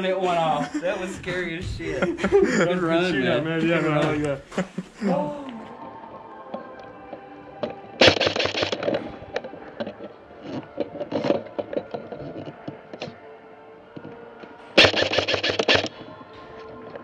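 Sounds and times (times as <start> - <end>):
airsoft guns firing bursts: 8.0 - 8.9, 14.8 - 15.9.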